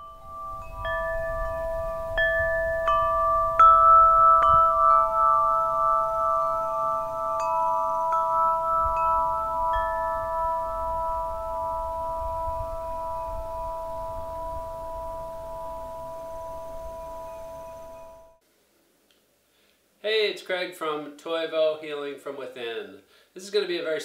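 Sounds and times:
metal wind chime ringing: 0:00.0 - 0:18.4.

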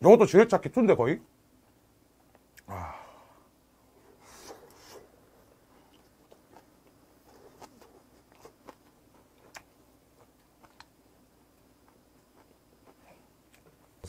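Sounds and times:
man chewing food: 0:04.0 - 0:14.0.

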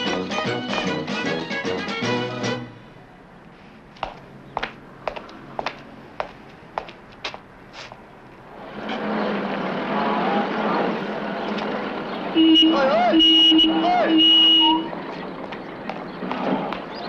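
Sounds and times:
car horn blasts: 0:12.4 - 0:14.9.

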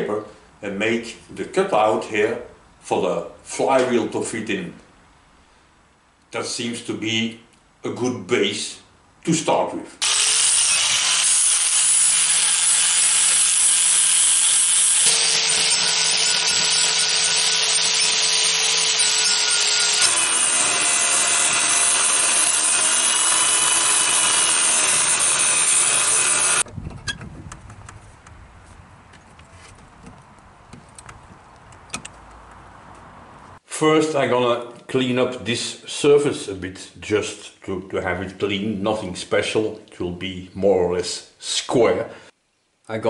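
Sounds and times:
angle grinder cutting steel: 0:10.0 - 0:26.7.

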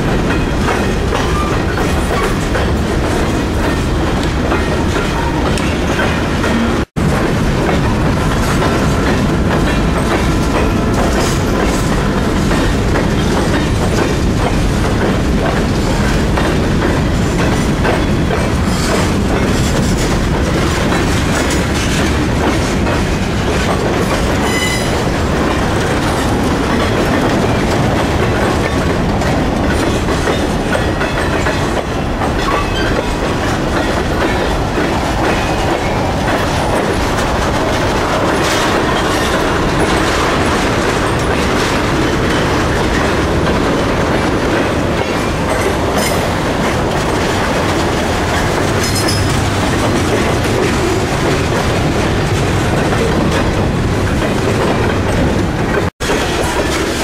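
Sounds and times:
freight train rumbling past: 0:00.0 - 0:57.0
wheels clacking over rails: 0:00.0 - 0:57.0
high wheel squeal: 0:24.4 - 0:25.0.

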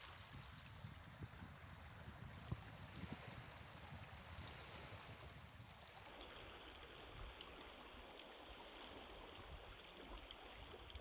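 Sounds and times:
wind rumble on microphone: 0:00.0 - 0:07.6
small waves washing: 0:00.0 - 0:11.0.

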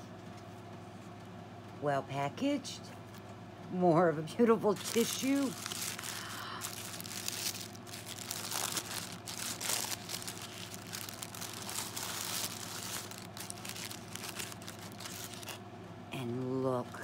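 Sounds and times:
tissue paper crinkling and rustling: 0:04.7 - 0:15.6.

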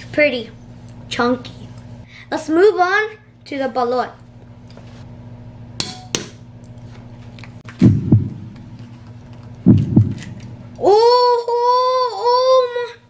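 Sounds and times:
low hum: 0:07.4 - 0:11.6.

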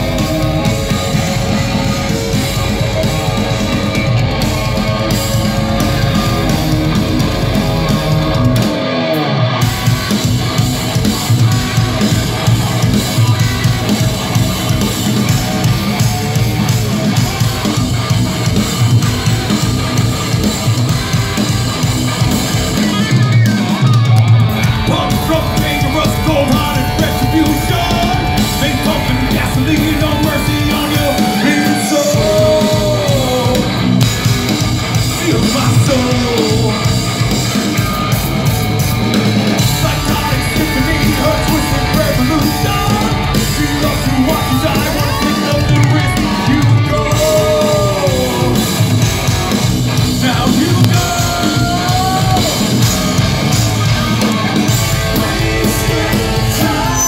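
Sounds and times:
bass guitar: 0:00.0 - 0:57.0
distorted electric guitar: 0:00.0 - 0:57.0
rock drum kit: 0:00.0 - 0:57.0
man singing: 0:24.5 - 0:34.1, 0:35.0 - 0:37.1, 0:39.6 - 0:49.1, 0:50.0 - 0:57.0.

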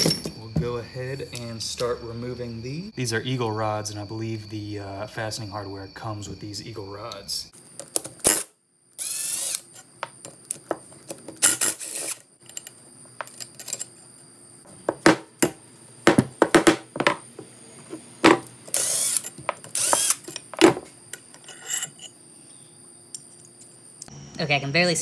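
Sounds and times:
metallic clinks and knocks: 0:00.0 - 0:00.4
cordless power tool spinning bolts: 0:08.2 - 0:09.8, 0:11.4 - 0:12.2, 0:18.7 - 0:20.4.

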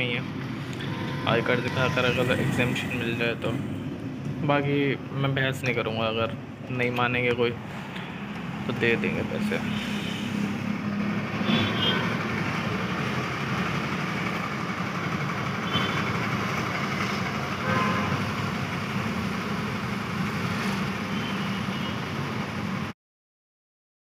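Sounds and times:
car cabin road and engine noise: 0:00.0 - 0:22.9
car horn toots: 0:11.4 - 0:12.2, 0:17.6 - 0:18.3.

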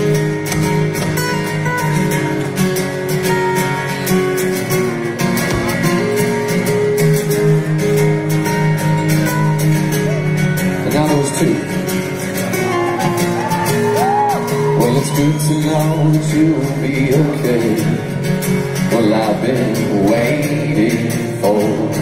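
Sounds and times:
strummed acoustic guitars: 0:00.0 - 0:22.0
man singing: 0:14.6 - 0:22.0.

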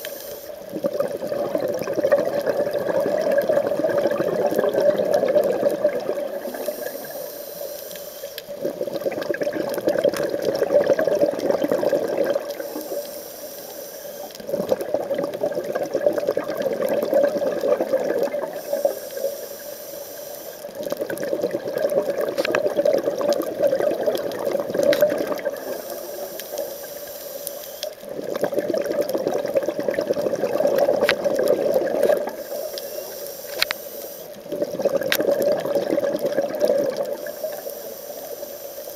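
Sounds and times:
regulator hissing inhale: 0:00.0 - 0:00.7, 0:06.3 - 0:08.8, 0:12.6 - 0:14.5, 0:18.5 - 0:20.8, 0:25.5 - 0:28.1, 0:32.2 - 0:34.4, 0:37.1 - 0:38.9
exhaled air bubbling: 0:00.0 - 0:38.9.

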